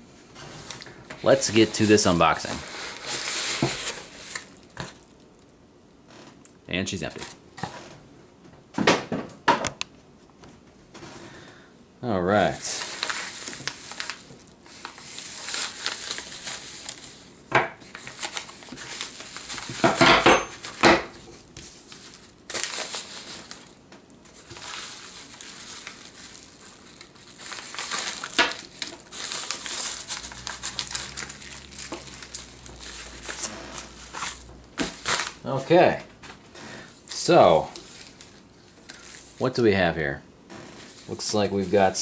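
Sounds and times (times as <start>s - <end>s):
bubble mailer crinkling: 12.4s - 20.8s, 21.4s - 39.5s.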